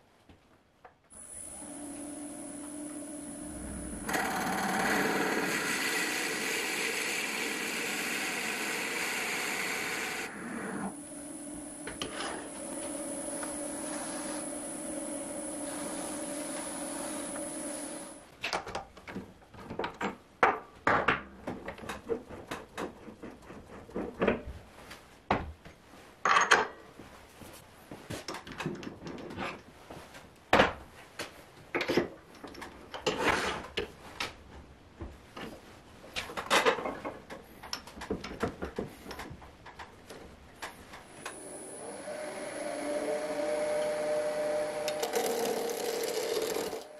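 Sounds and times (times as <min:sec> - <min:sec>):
wood lathe whining: 0:01.2 - 0:18.2, 0:41.2 - 0:46.9.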